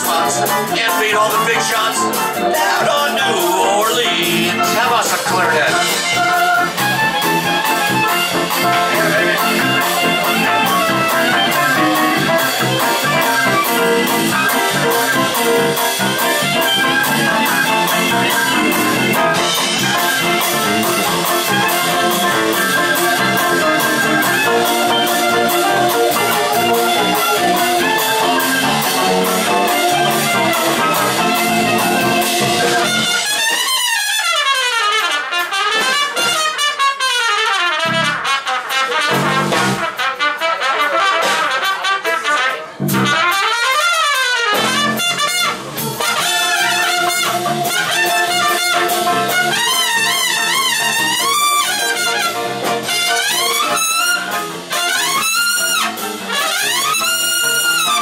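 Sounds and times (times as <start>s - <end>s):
jazz band playing: 0.0s - 58.0s
trumpet solo: 0.0s - 58.0s.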